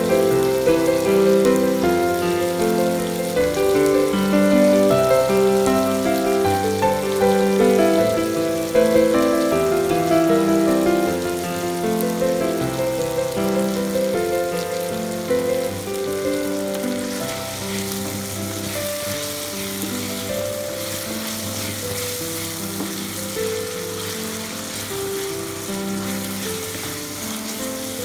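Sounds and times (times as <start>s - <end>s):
vegetables sizzling in oil: 0.0s - 28.0s
wooden spatula stirring: 16.5s - 28.0s.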